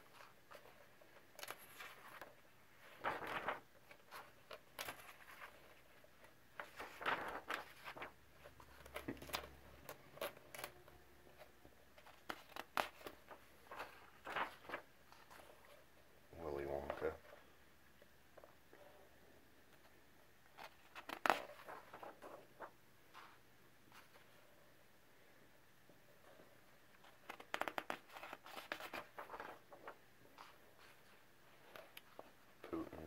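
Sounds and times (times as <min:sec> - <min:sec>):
book pages turning: 0:00.0 - 0:15.9, 0:20.5 - 0:24.3, 0:26.9 - 0:33.0.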